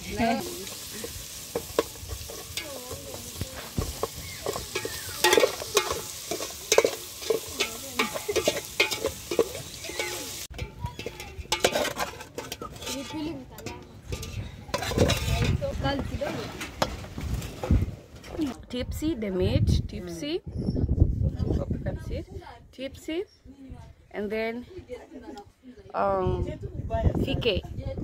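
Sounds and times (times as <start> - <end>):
meat sizzling in a pot: 0.0 - 11.7
metal ladle scraping a pot: 0.2 - 15.7.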